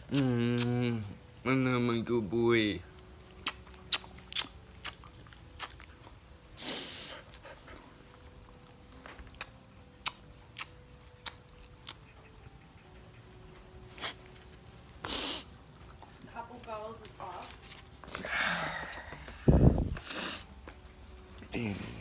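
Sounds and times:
dog sniffing: 0:06.6 - 0:08.2, 0:11.8 - 0:16.0.

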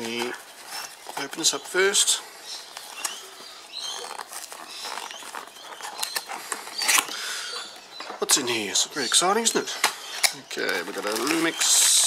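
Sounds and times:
cardboard packaging handled: 0:00.0 - 0:07.2, 0:10.4 - 0:12.0
tissue paper crinkling: 0:02.7 - 0:07.0, 0:10.6 - 0:12.0.

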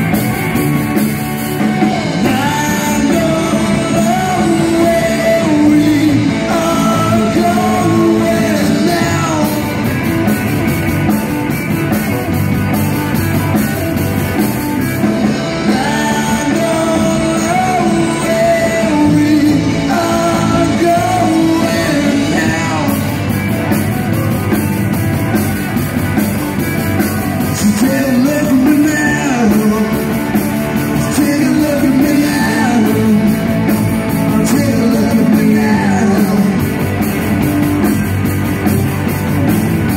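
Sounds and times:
drum kit with cymbals: 0:00.0 - 0:39.9
electric guitar: 0:00.0 - 0:39.9
person singing: 0:01.5 - 0:10.2, 0:15.2 - 0:24.6, 0:27.0 - 0:37.0.

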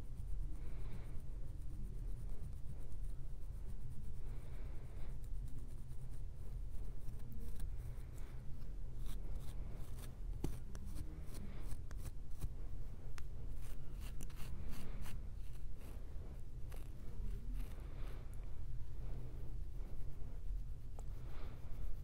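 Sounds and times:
dry scratching of scalp: 0:00.0 - 0:22.0
slow heavy breathing: 0:14.5 - 0:22.0.

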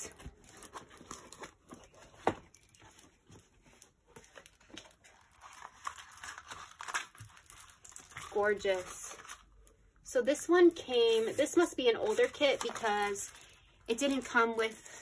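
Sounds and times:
plastic film rustling and crinkling: 0:00.0 - 0:15.0.

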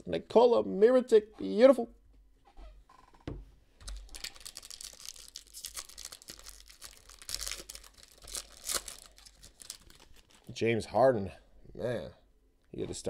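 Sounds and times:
foil wrapper tearing and crinkling: 0:03.8 - 0:10.5.

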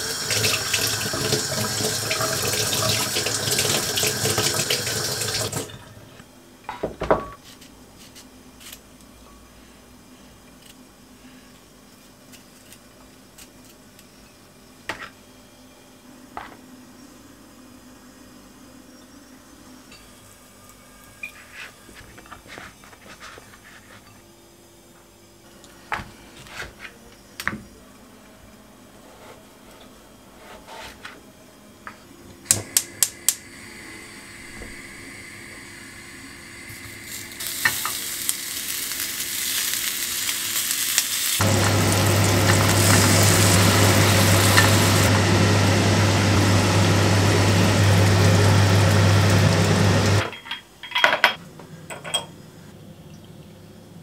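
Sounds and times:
meat sizzling in a pan: 0:35.8 - 0:50.2.

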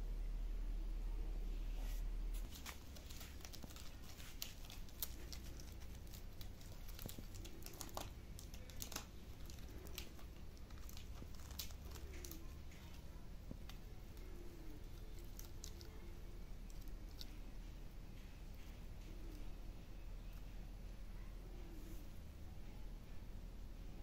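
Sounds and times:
dry bark crackling and rustling: 0:02.3 - 0:20.6.

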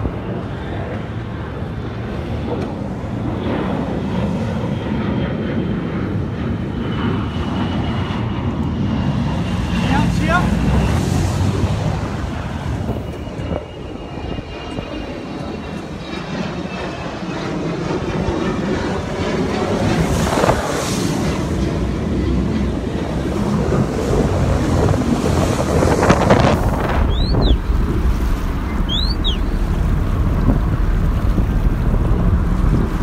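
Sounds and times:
jet ski engine drone: 0:00.0 - 0:33.0
wind buffeting microphone: 0:00.0 - 0:33.0
short high chirps: 0:28.7 - 0:29.5.

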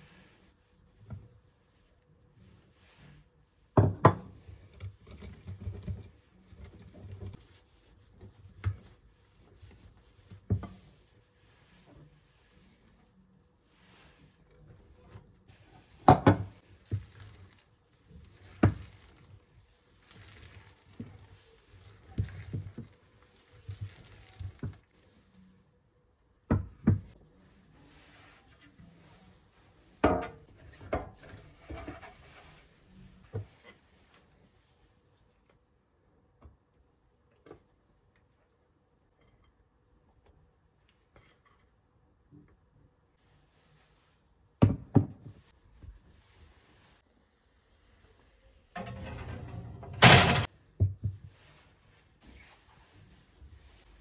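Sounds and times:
kitchen knocks and thuds: 0:03.8 - 0:04.3, 0:16.1 - 0:16.6, 0:44.6 - 0:45.4, 0:48.8 - 0:51.2
rustling and light scraping: 0:04.3 - 0:25.7, 0:27.1 - 0:35.7, 0:43.2 - 0:44.5, 0:45.3 - 0:47.0, 0:51.0 - 0:54.0.

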